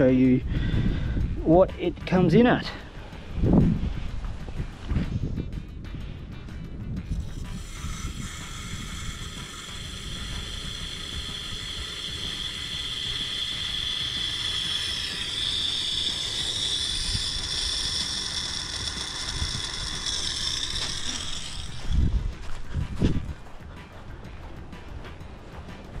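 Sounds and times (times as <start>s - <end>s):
water hissing and whistling in pipes: 7.2s - 22.2s.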